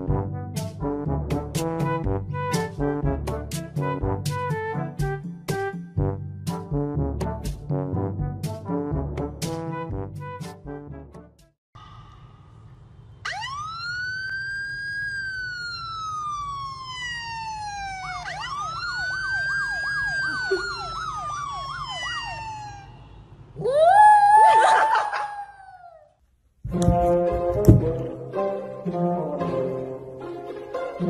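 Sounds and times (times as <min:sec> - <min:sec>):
emergency siren wailing and yelping: 0:13.2 - 0:26.1.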